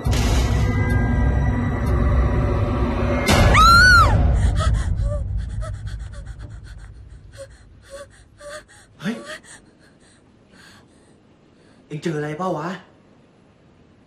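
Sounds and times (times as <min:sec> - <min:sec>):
woman screaming: 0:03.5 - 0:06.7
woman panting and gasping: 0:04.0 - 0:11.2.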